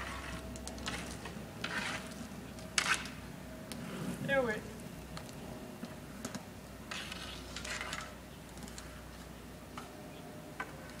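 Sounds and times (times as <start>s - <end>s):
hockey stick striking ball: 2.8s - 3.2s, 6.9s - 8.1s.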